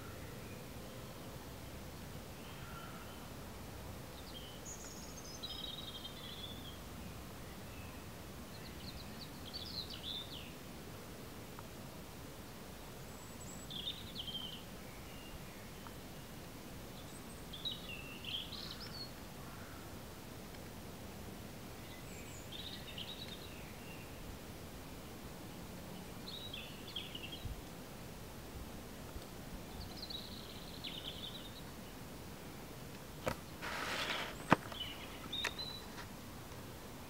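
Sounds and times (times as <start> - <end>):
steady background hiss: 0.0 - 37.0
small birds chirping: 4.0 - 10.6, 13.0 - 19.9, 21.7 - 24.2, 24.9 - 27.6, 29.6 - 36.2.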